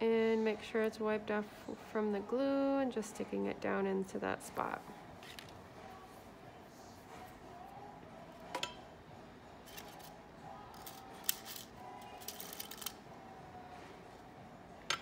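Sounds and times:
hand tools and glass clicking: 8.5s - 8.9s, 10.7s - 13.0s.

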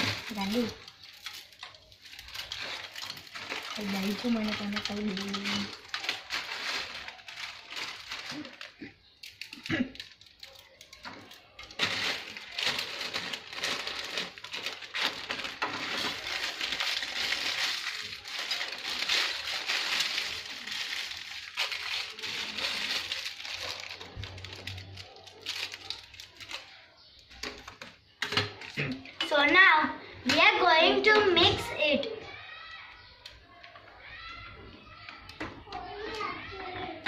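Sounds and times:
plastic packet crinkling: 0.0s - 29.2s
dry noodles crackling and crunching: 0.0s - 29.5s, 32.3s - 37.0s.

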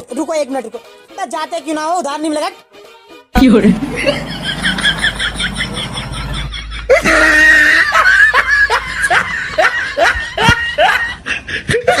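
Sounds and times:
man laughing loudly: 3.6s - 12.0s.

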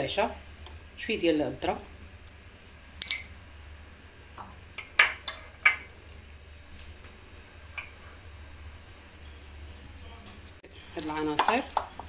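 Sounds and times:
metal spoon clinking on bowl: 3.0s - 3.4s.

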